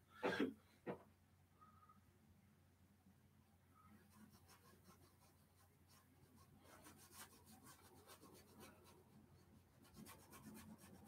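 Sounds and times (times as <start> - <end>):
paintbrush scratching on canvas: 3.9 - 11.0.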